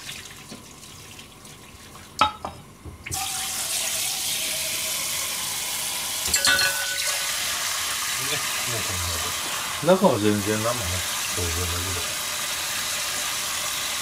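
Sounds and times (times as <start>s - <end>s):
water running into a metal sink: 0.0s - 2.1s, 3.1s - 14.0s
pot knocking: 2.2s - 2.6s.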